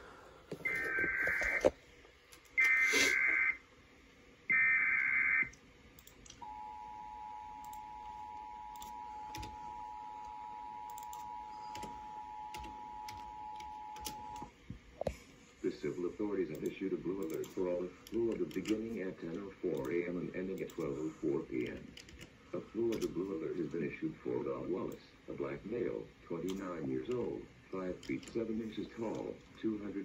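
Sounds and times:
screechy data tone bursts: 2.6s - 3.6s.

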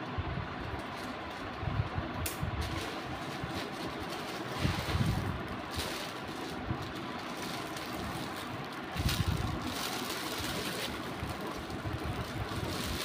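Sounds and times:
plastic packaging crinkling: 2.6s - 13.0s.

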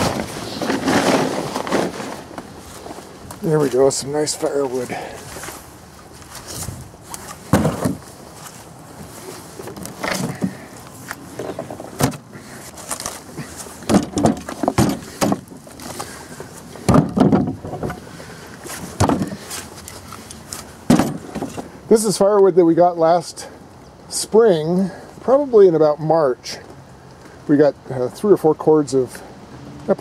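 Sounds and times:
firewood pieces clunking: 6.2s - 8.1s, 9.6s - 21.7s.

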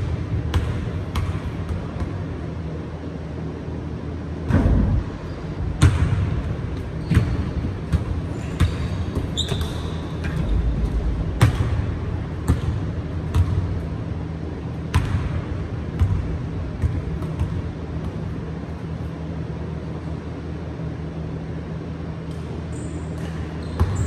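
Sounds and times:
low steady hum: 0.0s - 24.0s
sneaker squeak: 5.1s - 5.8s, 6.9s - 11.0s, 22.6s - 24.0s
basketball bouncing on wooden floor: 7.0s - 13.8s, 16.0s - 18.2s, 23.2s - 24.0s.

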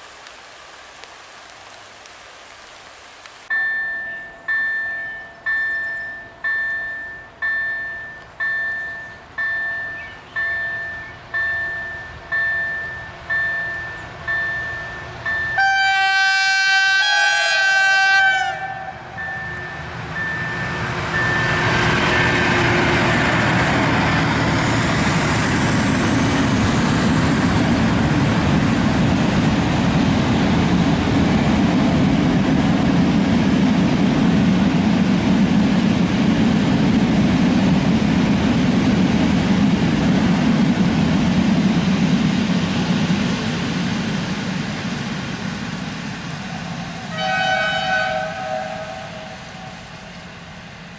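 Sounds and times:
train wheels rumbling on rails: 3.5s - 50.9s
locomotive horn: 15.6s - 19.5s, 47.1s - 49.8s.

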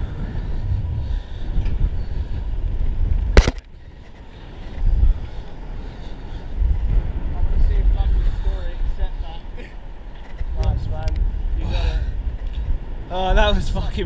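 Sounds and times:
wind buffeting microphone: 0.0s - 14.0s
sharp knock: 3.4s - 3.7s.

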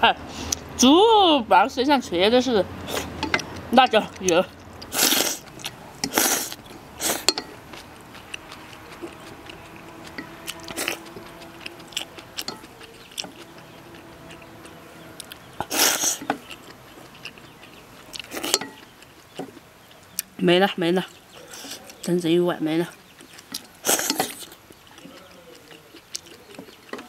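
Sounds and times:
chewing with small clicks: 2.9s - 20.4s, 21.0s - 22.2s, 22.8s - 27.0s
person slurping noodles: 4.9s - 7.3s, 15.6s - 16.7s, 23.8s - 24.5s.

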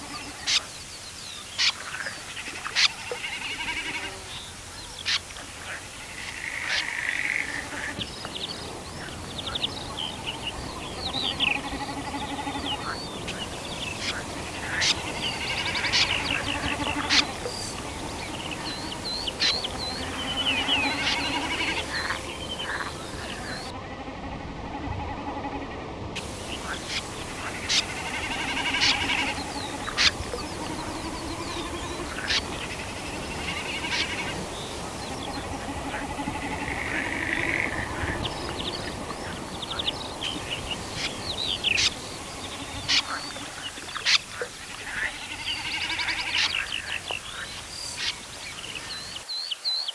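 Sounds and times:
songbird singing: 0.0s - 49.9s
rapid bird trills: 1.4s - 23.7s.

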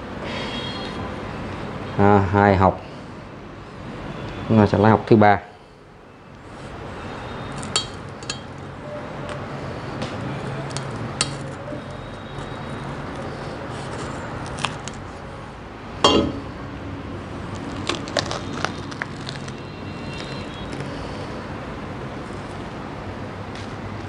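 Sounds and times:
husk cracking and clicking: 14.0s - 15.1s, 17.5s - 20.9s.

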